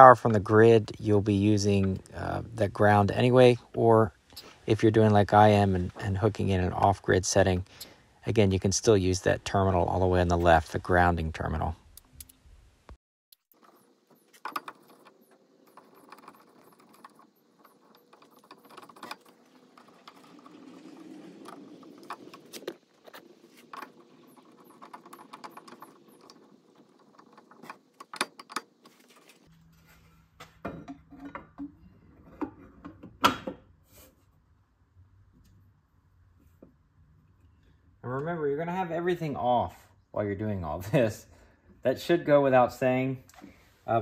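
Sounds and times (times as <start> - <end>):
wires rustling: 13.4 - 30.4.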